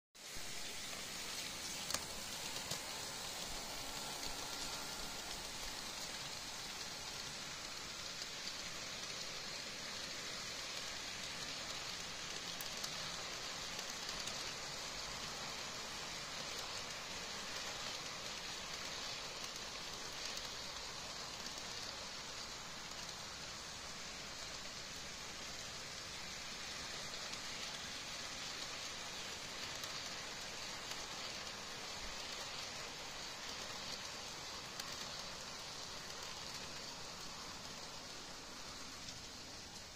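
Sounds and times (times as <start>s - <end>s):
model train wheels rattling on rail: 0.2s - 39.9s.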